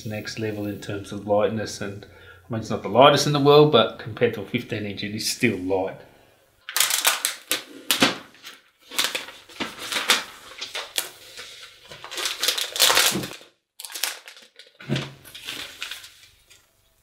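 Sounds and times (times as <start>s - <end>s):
plastic wrap crinkling: 6.6s - 16.8s.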